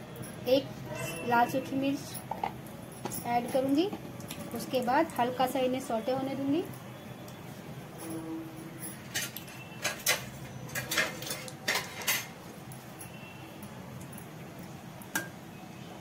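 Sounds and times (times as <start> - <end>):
spices popping in hot oil: 2.0 - 7.5, 8.9 - 15.8.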